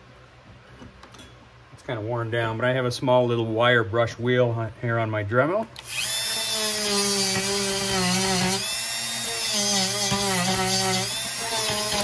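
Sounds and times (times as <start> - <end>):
rotary tool whining: 5.8 - 12.0.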